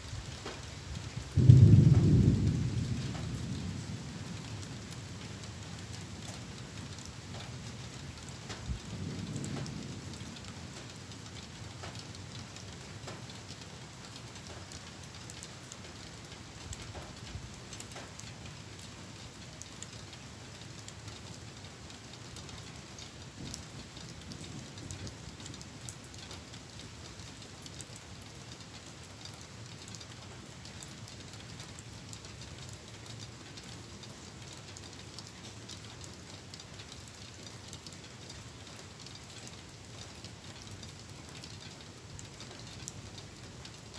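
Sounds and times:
rain falling: 0:00.0 - 0:43.9
distant thunder rumble: 0:01.2 - 0:05.3, 0:08.6 - 0:11.1.

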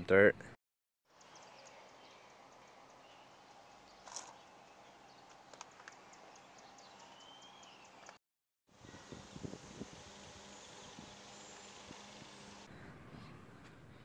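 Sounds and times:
faint bird chirps: 0:01.1 - 0:08.2.

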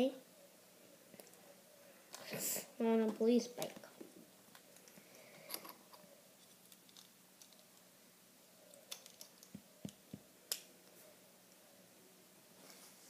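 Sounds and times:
plastic lego pieces clicking: 0:06.6 - 0:07.7, 0:08.9 - 0:10.6.

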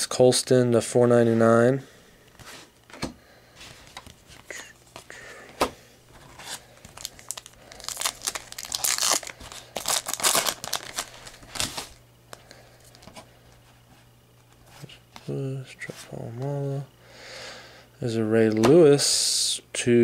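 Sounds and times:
foil wrapper tearing and crinkling: 0:06.4 - 0:12.0.

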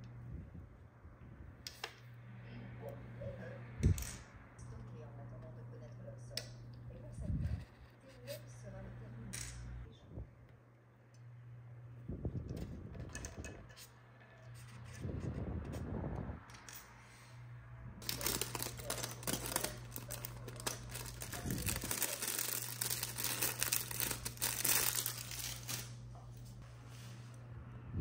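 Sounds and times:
plastic bag crinkling: 0:18.0 - 0:26.0.

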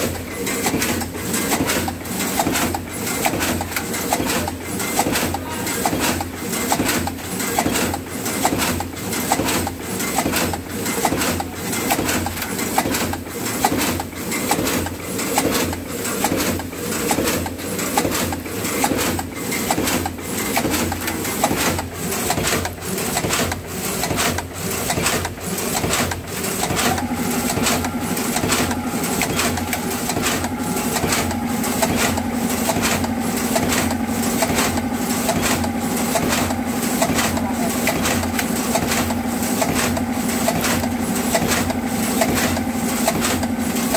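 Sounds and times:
packing machine clacking: 0:00.0 - 0:43.9
steady machine hum: 0:00.0 - 0:43.9.

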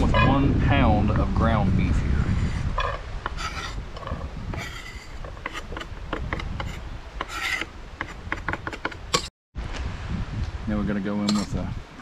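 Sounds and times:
knife rasping through onion: 0:03.3 - 0:03.8, 0:04.5 - 0:09.0.

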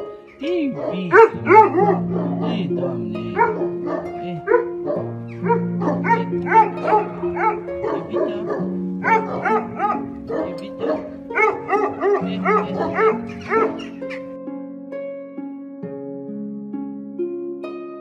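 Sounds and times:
background music with held notes: 0:00.0 - 0:18.0
dog barking: 0:00.8 - 0:14.2.

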